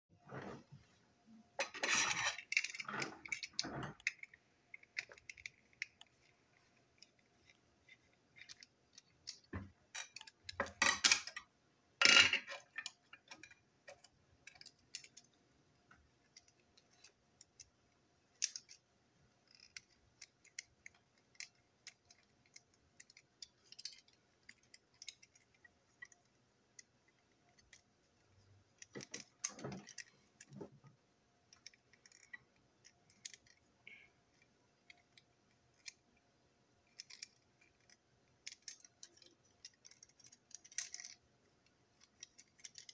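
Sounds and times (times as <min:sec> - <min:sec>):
plastic parts knocking and rattling: 0:01.6 - 0:17.7, 0:19.4 - 0:34.0, 0:41.9 - 0:42.9
plastic toy parts clicking: 0:01.7 - 0:11.5, 0:12.1 - 0:15.4, 0:16.2 - 0:27.9, 0:28.8 - 0:30.6, 0:31.5 - 0:36.2, 0:36.8 - 0:42.9.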